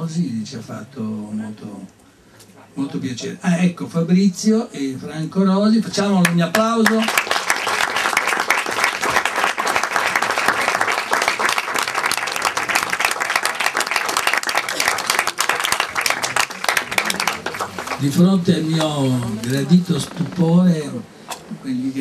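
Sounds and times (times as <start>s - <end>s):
audience applauding: 6.2s - 20.1s.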